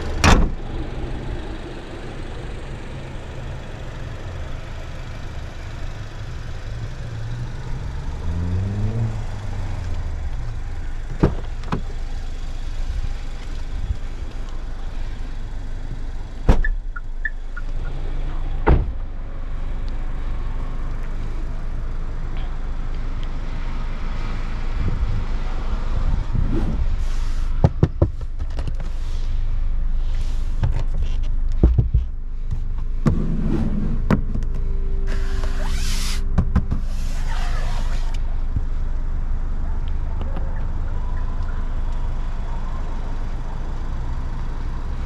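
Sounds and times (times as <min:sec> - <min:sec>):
low rumble: 0:20.6 - 0:27.7.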